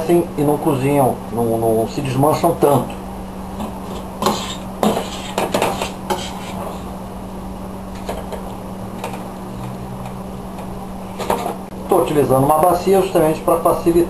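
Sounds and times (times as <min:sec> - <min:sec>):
low hum: 0:06.0 - 0:13.1.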